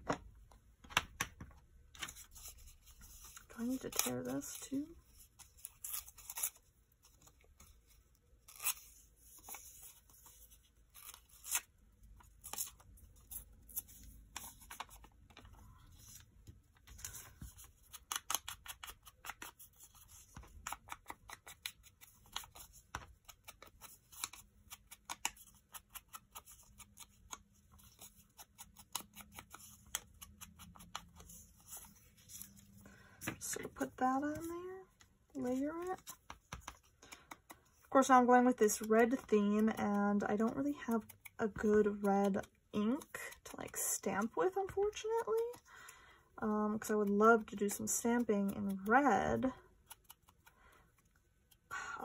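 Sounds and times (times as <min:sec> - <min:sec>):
paper handling: 0:00.0 - 0:37.9.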